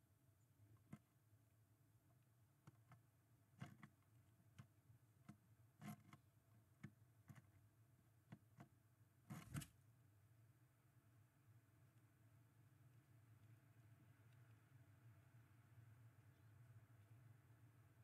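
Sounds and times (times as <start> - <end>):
bird tapping and scratching on wood: 2.6 - 9.8.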